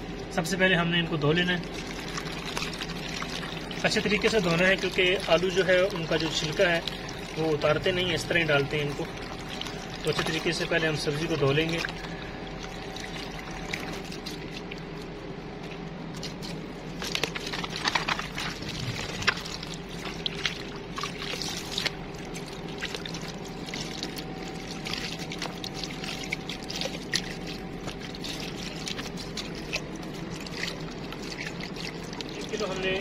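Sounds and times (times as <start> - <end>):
steady low hum: 0.0 - 33.0
water pouring and splashing: 1.5 - 15.1, 15.7 - 33.0.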